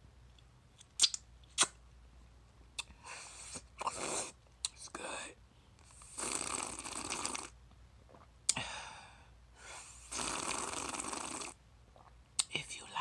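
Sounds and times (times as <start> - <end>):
sucking drink through a straw: 6.0 - 7.5, 10.0 - 12.1.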